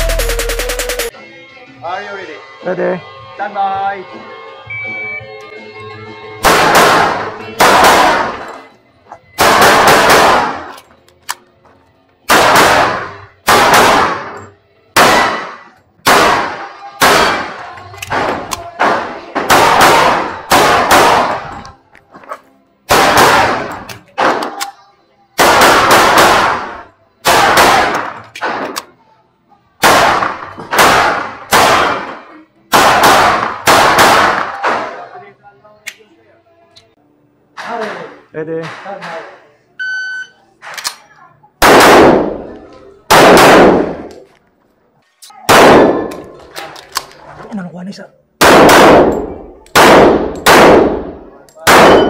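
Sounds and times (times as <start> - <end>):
pistol shots with reverberant tail: 6.4 - 8.5, 9.4 - 10.7, 12.3 - 14.4, 15.0 - 21.5, 22.9 - 24.6, 25.4 - 28.9, 29.8 - 35.1, 41.6 - 44.2, 45.5 - 46.3, 48.4 - 52.0.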